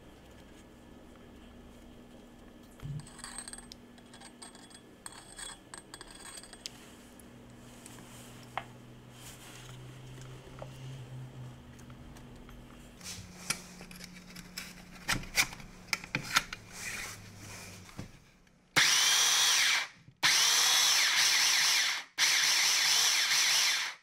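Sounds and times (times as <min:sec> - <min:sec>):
belt sander whining: 0:18.8 - 0:24.0.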